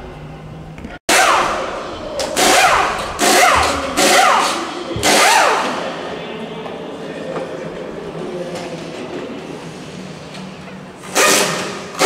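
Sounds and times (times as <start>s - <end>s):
impact wrench bursts: 1.1s - 5.9s, 11.0s - 12.0s.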